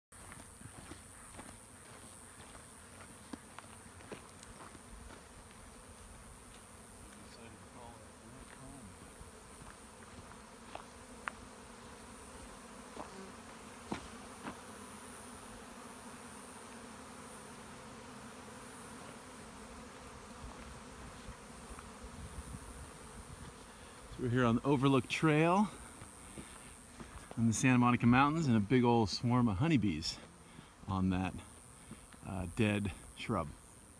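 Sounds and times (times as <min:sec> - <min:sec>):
buzzing of many bees: 0:00.2 - 0:33.9.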